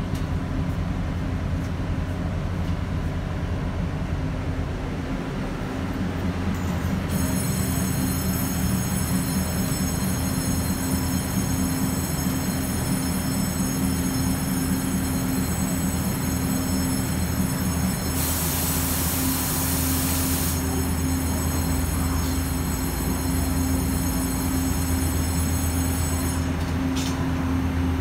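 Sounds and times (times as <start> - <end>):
electric train equipment hum: 0.0 - 28.0
thin high steady tones: 6.7 - 26.6
hiss: 18.1 - 20.8.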